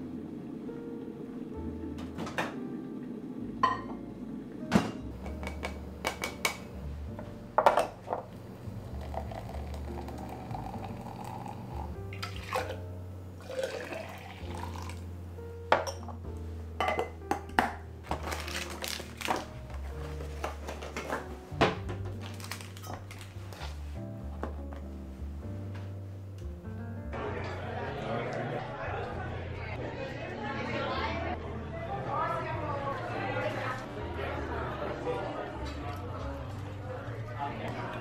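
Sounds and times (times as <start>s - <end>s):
liquid pouring: 8.3s - 12.8s, 13.4s - 15.2s
glassware clinking on wooden board: 16.8s - 17.2s.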